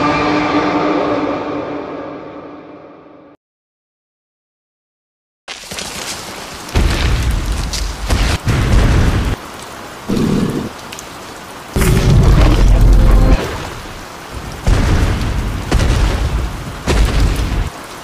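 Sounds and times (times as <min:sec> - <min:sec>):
steady rain: 0:05.5 - 0:18.0
rumbling thunder: 0:11.8 - 0:17.7.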